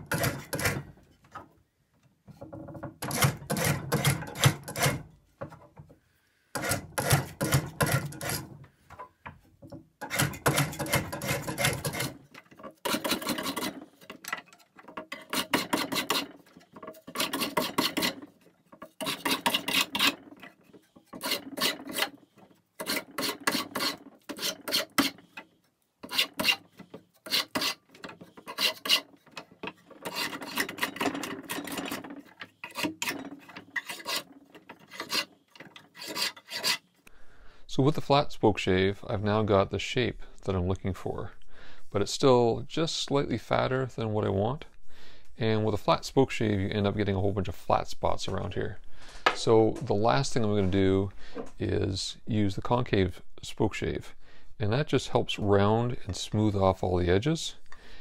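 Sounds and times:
spokeshave shaving wood: 0.0s - 1.0s, 3.0s - 5.1s, 6.6s - 8.6s, 10.0s - 25.4s, 26.0s - 36.9s.

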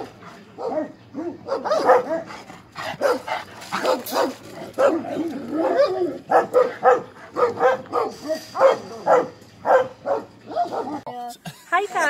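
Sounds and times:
dogs barking: 0.6s - 11.1s.

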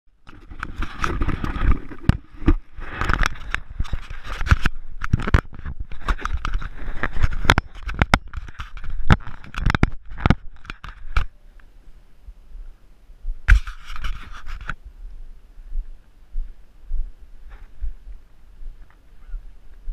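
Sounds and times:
sharp clicks and knocks: 0.2s - 11.3s.

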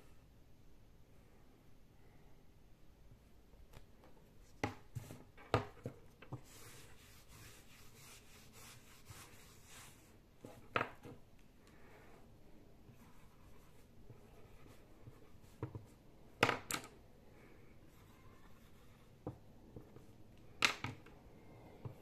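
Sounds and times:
soft rubbing wiping board: 6.3s - 10.7s, 11.9s - 16.0s.

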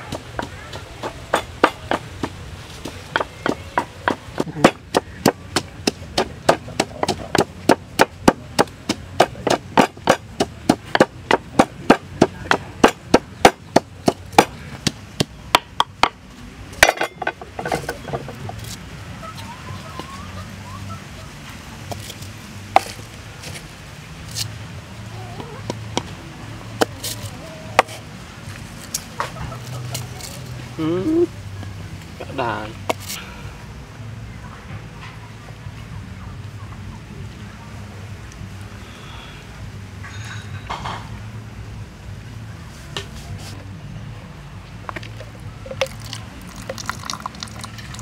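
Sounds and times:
pestle pounding in wooden mortar: 0.0s - 16.2s.

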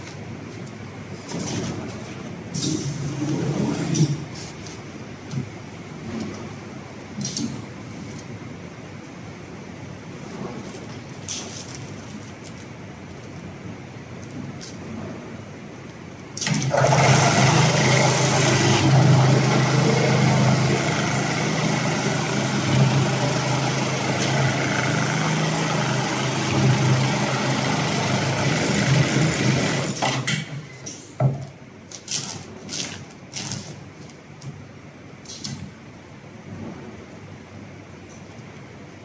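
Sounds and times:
sewing machine running: 16.4s - 30.0s.

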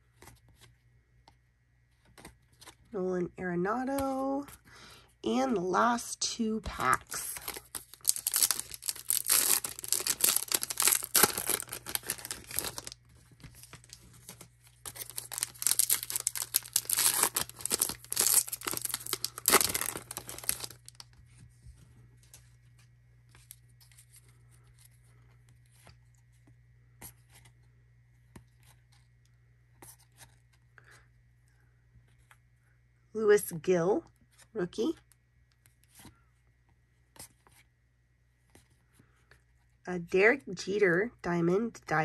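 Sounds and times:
foil wrapper crinkling and tearing: 6.7s - 21.2s
cards handled ticking: 7.3s - 21.0s.

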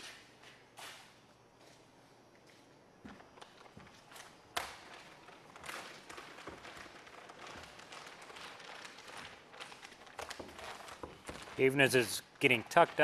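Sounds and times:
plastic film rustling and crinkling: 3.2s - 13.0s.

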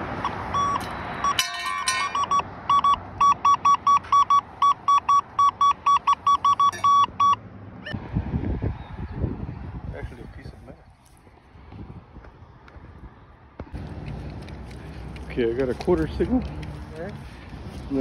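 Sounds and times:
metal detector beeping: 0.2s - 7.4s.

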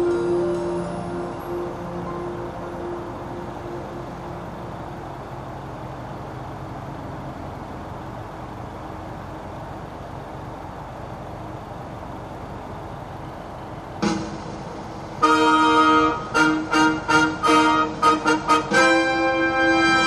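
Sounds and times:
faint held musical tones: 0.0s - 7.0s
traffic rumble: 0.0s - 20.0s.

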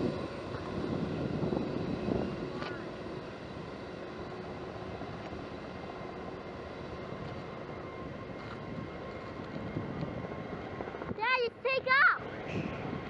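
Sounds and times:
jet engines running: 0.0s - 13.0s.

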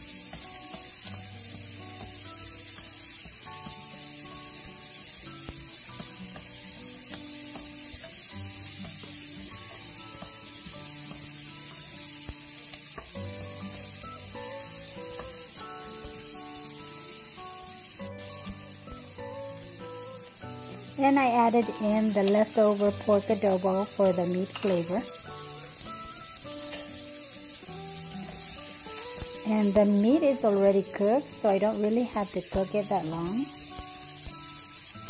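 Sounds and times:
soft background music: 0.0s - 35.0s
vegetables sizzling in hot oil: 0.0s - 35.0s
wooden spatula stirring in pan: 0.1s - 17.5s, 20.7s - 31.0s.

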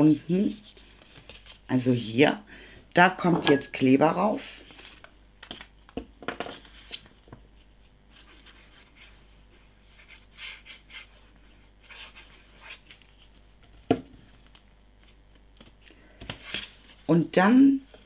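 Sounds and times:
paper handling: 4.6s - 7.4s.

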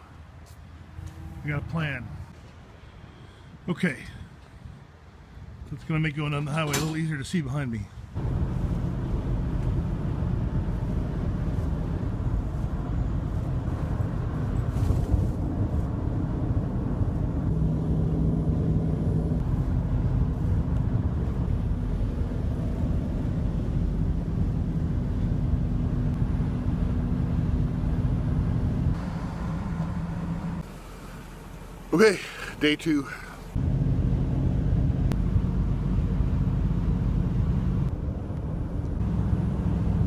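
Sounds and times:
road noise inside truck cab: 0.0s - 7.3s, 8.0s - 40.0s
engine hum: 8.2s - 40.0s.

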